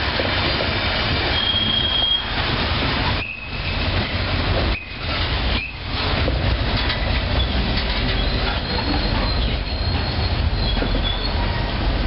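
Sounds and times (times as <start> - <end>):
train wheels rumbling on rail: 0.0 - 12.0
high wheel squeals: 1.3 - 2.4, 7.3 - 11.7.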